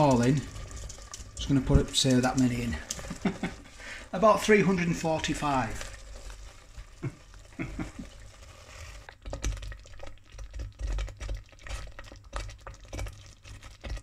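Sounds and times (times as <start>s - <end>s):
chilli bubbling and popping: 0.0s - 14.0s.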